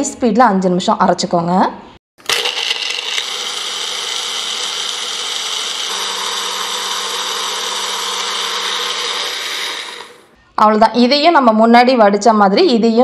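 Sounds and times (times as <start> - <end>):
mixer grinder blending: 2.2 - 10.3.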